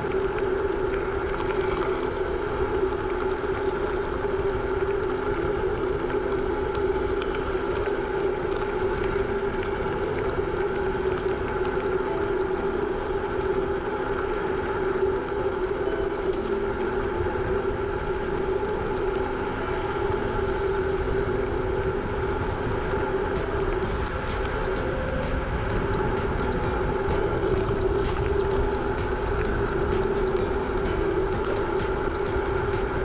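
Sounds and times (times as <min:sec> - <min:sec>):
wind on microphone: 0:00.0 - 0:33.0.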